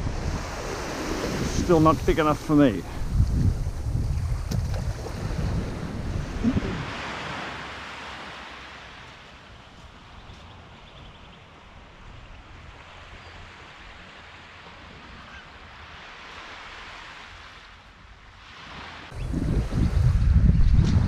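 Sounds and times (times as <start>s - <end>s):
wind buffeting microphone: 0.0s - 7.6s, 19.1s - 21.0s
small waves washing ashore: 0.0s - 10.8s, 11.4s - 20.4s.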